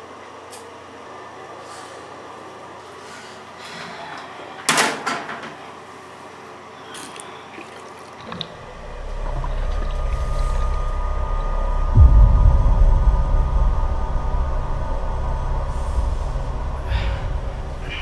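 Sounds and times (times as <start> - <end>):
low rumbling drone: 8.5 - 18.0
heavy boom: 8.6 - 18.0
steady high tone: 8.6 - 18.0
sharp bang: 9.7 - 18.0.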